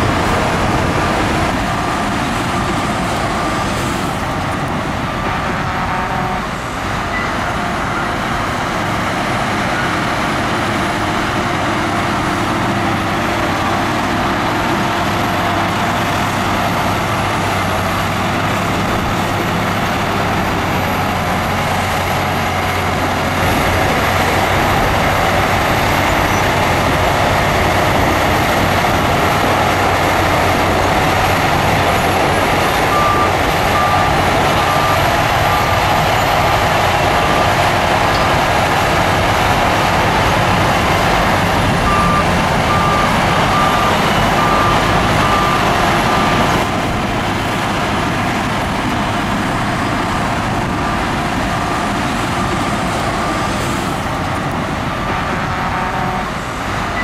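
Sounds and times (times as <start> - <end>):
bulldozer diesel engine running: 0.0 - 57.0
reversing alarm beeping: 7.1 - 8.3, 27.8 - 46.7.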